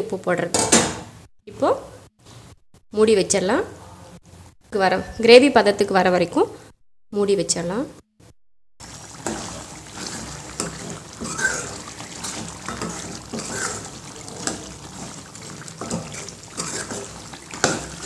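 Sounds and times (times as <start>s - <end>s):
gravy sloshing and squelching: 8.8s - 18.0s
ladle scraping metal pot: 8.8s - 18.0s.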